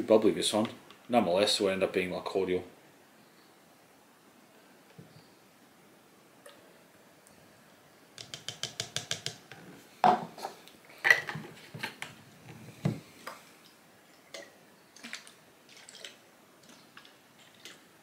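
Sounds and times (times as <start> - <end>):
sharp knocks on wooden table: 8.2 - 9.4.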